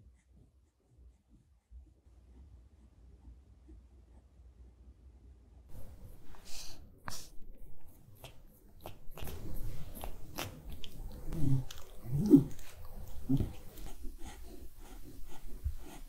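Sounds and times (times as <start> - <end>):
dog licking and lip smacking: 5.7 - 16.0
low voice-like sounds: 10.9 - 14.0.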